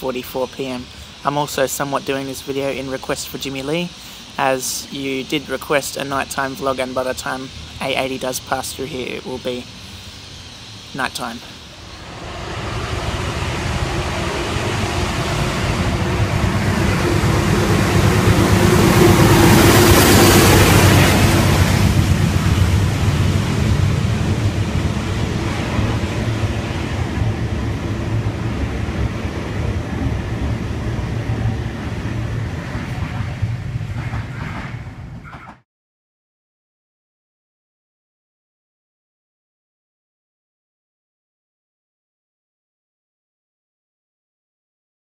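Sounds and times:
diesel locomotive engine: 0.0 - 35.6
train carriages rumbling past: 0.0 - 35.6.

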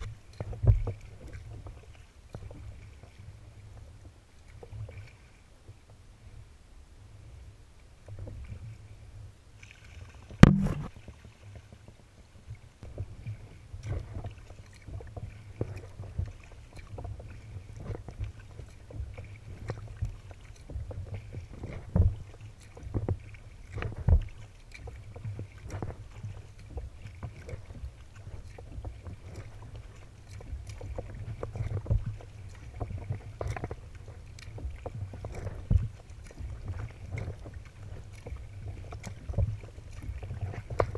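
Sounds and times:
paddle splashing: 0.0 - 40.9
water lapping against hull: 0.0 - 40.9
sharp knock: 10.4 - 10.9
steady low rumble: 10.4 - 10.9.

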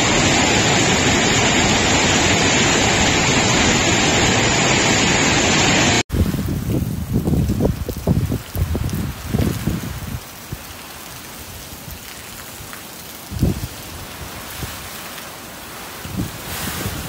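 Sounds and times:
heavy rain pouring: 0.0 - 17.0
wind buffeting microphone: 6.1 - 10.7, 13.2 - 14.9, 15.8 - 17.0.

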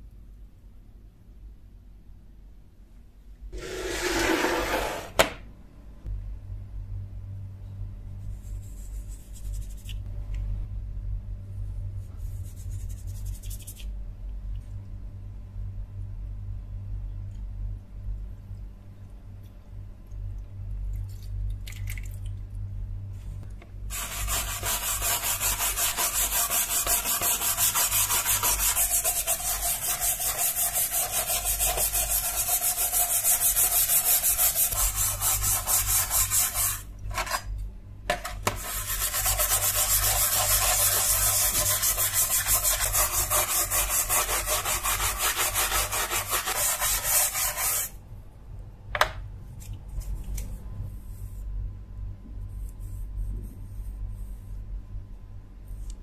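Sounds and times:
brush scrubbing metal blade: 23.9 - 37.4.

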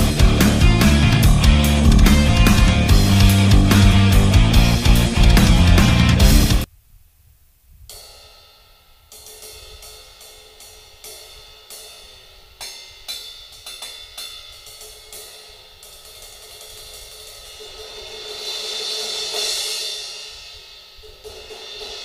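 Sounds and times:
crash cymbal struck with drumstick: 7.9 - 22.0.

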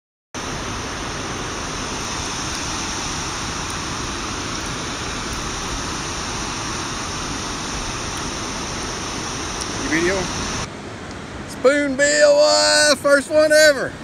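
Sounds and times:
water pouring over a spillway: 0.4 - 10.7.

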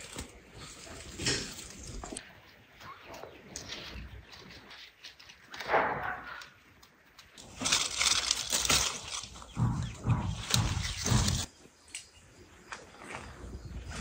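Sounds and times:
plant leaves rustling: 0.0 - 2.2, 7.4 - 9.6.

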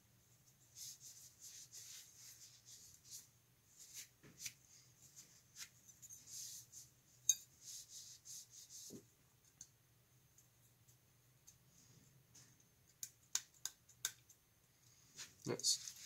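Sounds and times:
cloth rubbing on metal part: 0.7 - 9.0.

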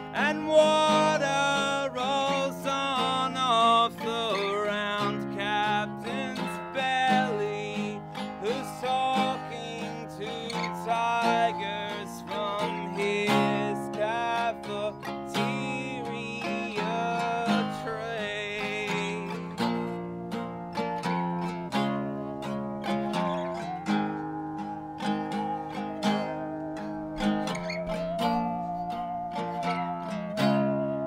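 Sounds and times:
man singing: 0.0 - 20.2, 22.4 - 23.9
strummed acoustic guitar: 0.0 - 31.0.

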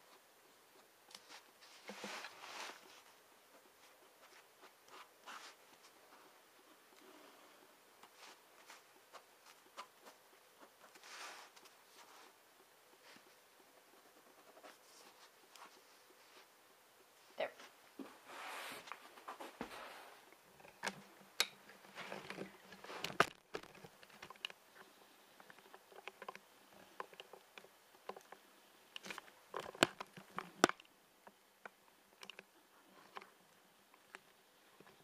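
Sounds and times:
recording device being handled: 20.6 - 30.9.

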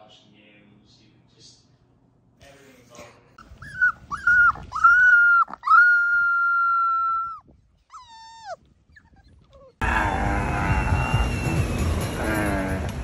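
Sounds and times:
puppy whining: 3.4 - 9.8
puppy yelping: 3.4 - 9.8.

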